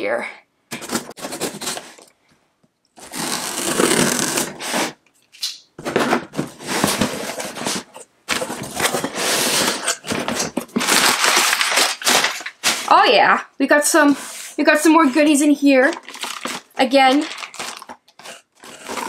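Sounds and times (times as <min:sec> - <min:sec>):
packing paper rustling: 0:00.7 - 0:02.1, 0:03.0 - 0:04.9, 0:05.8 - 0:13.2, 0:14.2 - 0:19.0
packing tape cut with scissors: 0:00.7 - 0:02.1, 0:03.0 - 0:12.9, 0:15.1 - 0:19.0.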